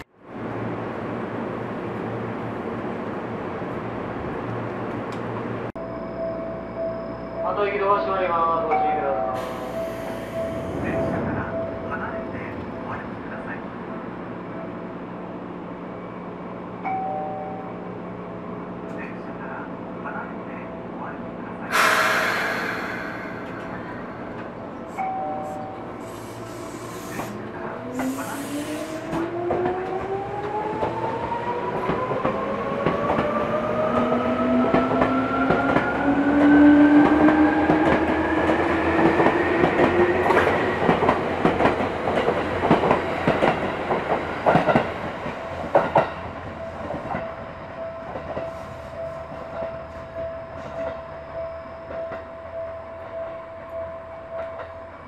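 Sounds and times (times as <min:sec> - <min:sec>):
level-crossing warning bell: 0:05.8 - 0:13.3, 0:16.8 - 0:17.8, 0:24.9 - 0:26.1, 0:45.2 - 0:55.0
air hiss: 0:21.7 - 0:23.8, 0:26.0 - 0:27.4.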